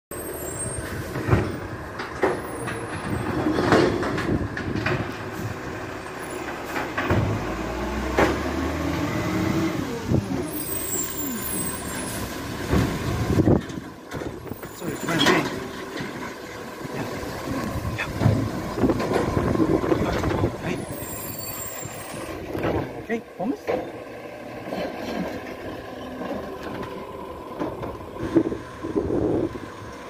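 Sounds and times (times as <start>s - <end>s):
truck engine running: 0.2s - 30.0s
clunks and knocks: 0.9s - 9.0s, 12.5s - 20.7s, 22.2s - 24.0s, 24.6s - 28.6s
short whining glides: 7.5s - 12.3s
low rumble: 15.6s - 21.2s.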